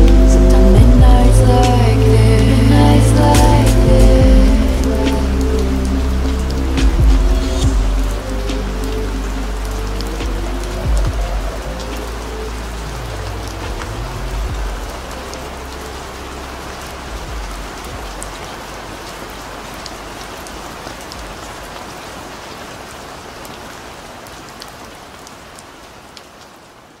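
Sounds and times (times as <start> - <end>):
low rumble: 0.0 - 19.2
steady rain falling: 0.0 - 27.0.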